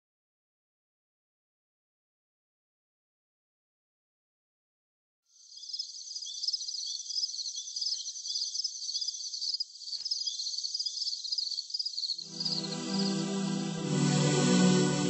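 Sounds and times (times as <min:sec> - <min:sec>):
crickets chirping: 0:05.4 - 0:13.8.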